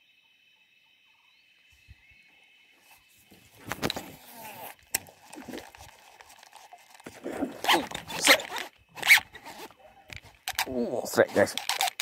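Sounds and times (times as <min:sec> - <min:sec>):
fishing reel cranking: 0:03.9 - 0:12.0.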